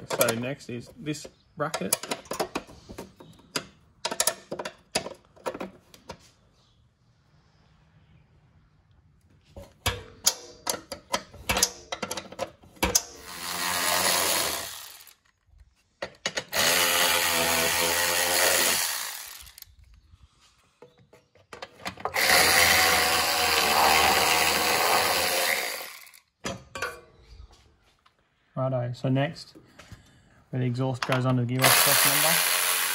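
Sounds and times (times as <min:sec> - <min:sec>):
sharp metal clicks: 0:00.0 - 0:00.5, 0:01.2 - 0:02.7, 0:09.8 - 0:13.3, 0:19.2 - 0:20.0
electric ratchet spinning nuts: 0:12.8 - 0:15.3, 0:16.5 - 0:19.7, 0:22.1 - 0:26.3, 0:31.6 - 0:32.9.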